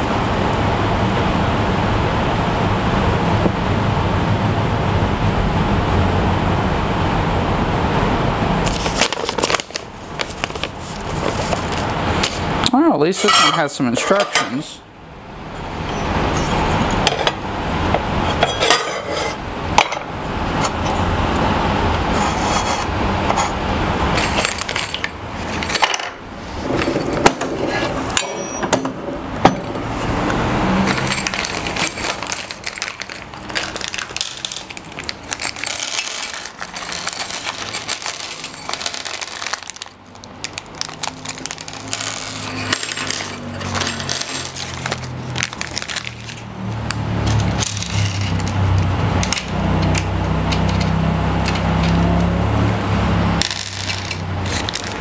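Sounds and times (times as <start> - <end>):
metal hardware clinking: 26.8 - 29.8, 30.8 - 39.8, 41.5 - 46.4.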